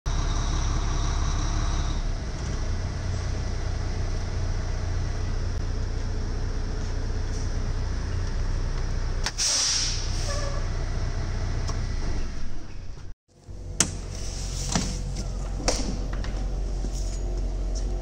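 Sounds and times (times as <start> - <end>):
diesel truck engine idling: 0.1 - 9.3.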